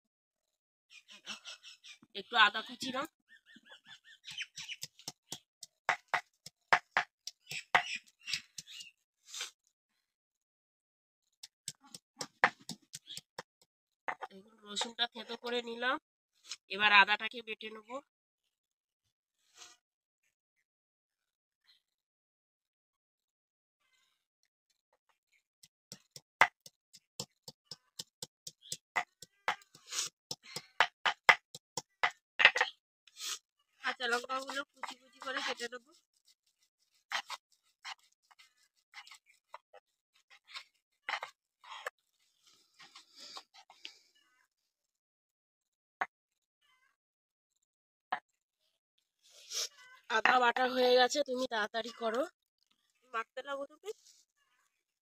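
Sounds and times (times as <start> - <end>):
stone pestle knocking on stone: 4.8 - 7.9, 11.7 - 13.5, 25.9 - 32.6
stone scraping: 11.6 - 13.5, 25.9 - 33.4, 34.0 - 42.0.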